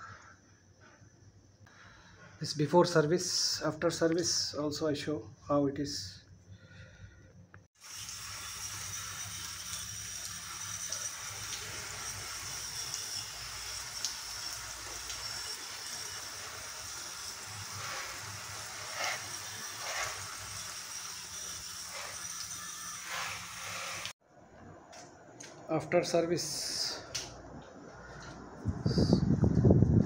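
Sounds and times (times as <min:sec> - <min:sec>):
water jet hissing: 0:07.8 - 0:24.2.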